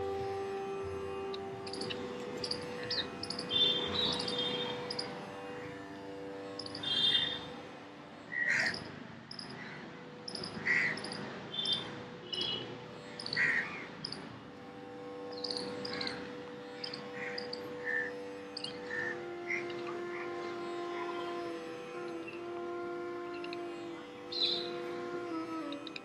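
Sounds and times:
birds chirping: 1.7 - 5.0.

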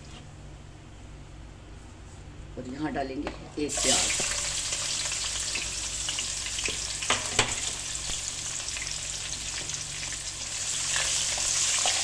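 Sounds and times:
onion sizzling in oil: 3.7 - 12.0.

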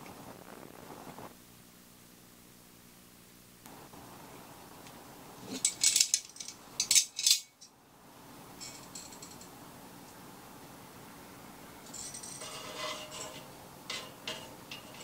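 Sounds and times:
metal clattering and scraping: 11.9 - 15.0.

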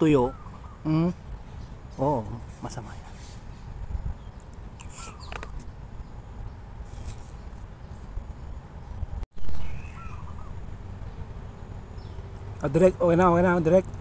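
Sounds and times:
high insect hum: 0.0 - 14.0
small birds chirping: 0.0 - 14.0
low rumble: 8.9 - 12.6.

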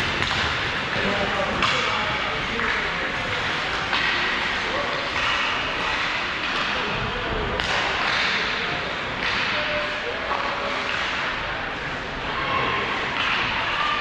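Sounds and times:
hockey stick hitting puck: 0.0 - 6.8, 7.6 - 8.6, 9.2 - 9.7, 10.3 - 11.4, 13.2 - 13.8.

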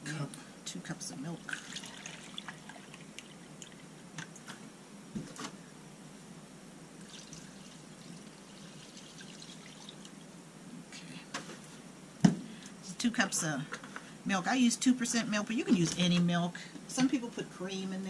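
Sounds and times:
milk pouring into pan: 1.5 - 3.9, 7.0 - 10.2.

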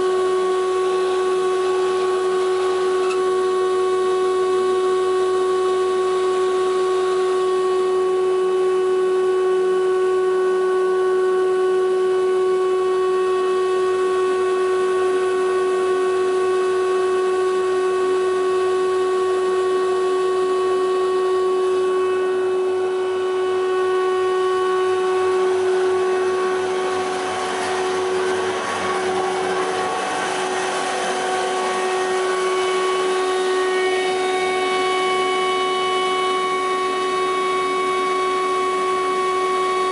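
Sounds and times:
thickness planer whining: 0.0 - 39.9
rough grinding noise: 24.0 - 34.8.

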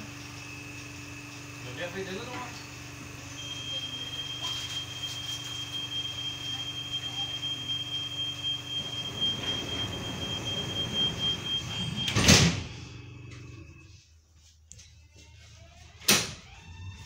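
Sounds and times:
train car low hum: 0.0 - 14.2
train doors shutting with a thud: 8.4 - 13.0.

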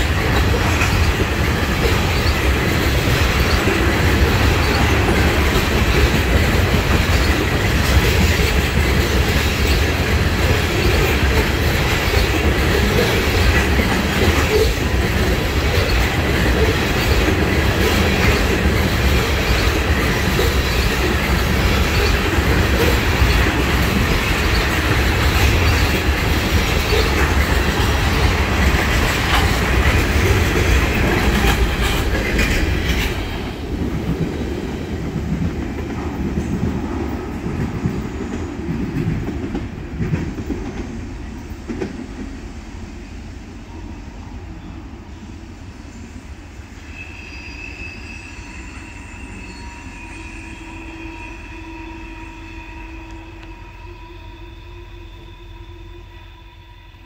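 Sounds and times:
wheels clicking on rail: 0.0 - 42.2
freight train rolling past: 0.0 - 57.0.

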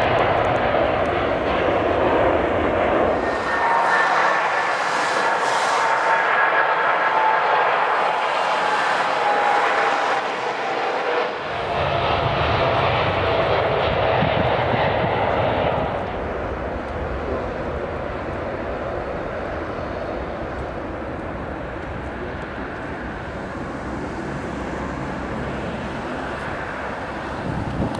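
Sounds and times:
jet engines whining and rumbling: 0.0 - 27.9.

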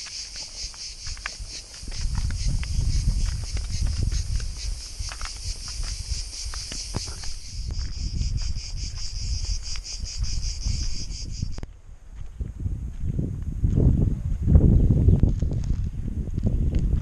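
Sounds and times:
cicadas chirring: 0.0 - 11.7
footsteps crunching on dirt path: 0.0 - 17.0.

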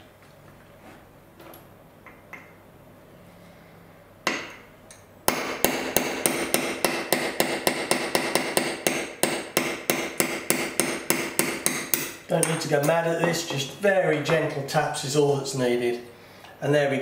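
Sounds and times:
hammer tapping steel punch: 4.2 - 13.6.

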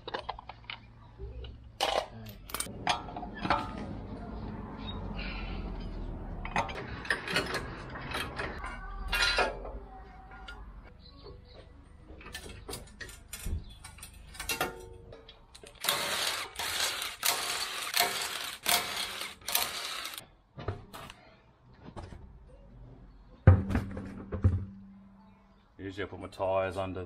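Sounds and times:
metal clicks and knocks: 12.2 - 15.9
impact wrench bursts: 15.8 - 20.2.

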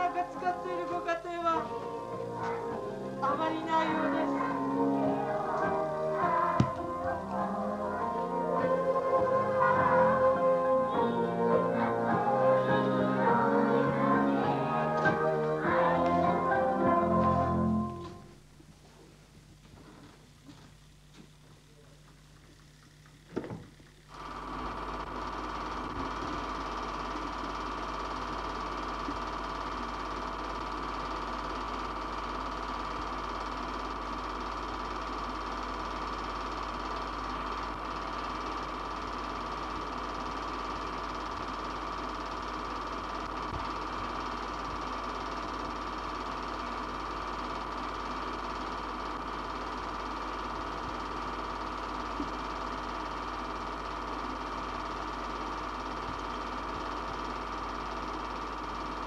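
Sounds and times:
low hum: 0.0 - 18.7
film projector whirring: 0.0 - 21.3, 22.0 - 59.0
low hum and hiss: 0.0 - 42.1.

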